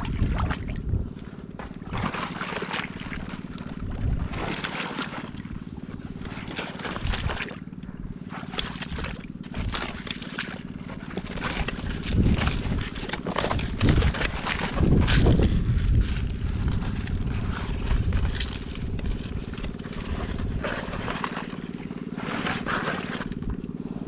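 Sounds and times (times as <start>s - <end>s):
water sloshing and splashing: 0.0s - 24.0s
small motor running: 1.7s - 24.0s.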